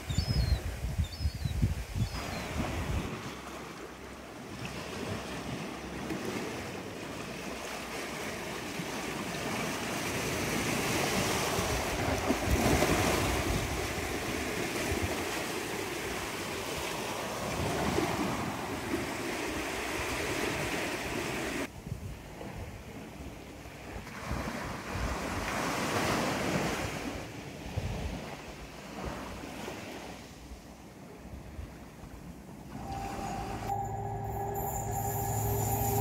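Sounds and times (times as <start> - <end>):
wind buffeting microphone: 0.0 - 3.4, 10.2 - 22.9
waves washing over concrete: 2.1 - 23.2, 23.8 - 31.9.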